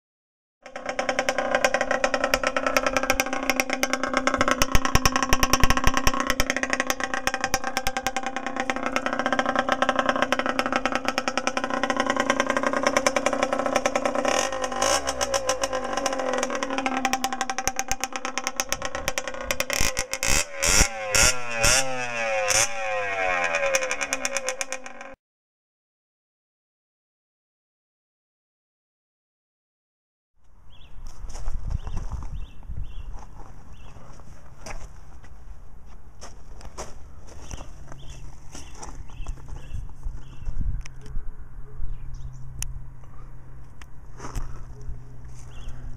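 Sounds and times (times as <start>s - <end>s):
two-stroke engine idling and revving: 0.6s - 25.2s, 36.2s - 45.9s.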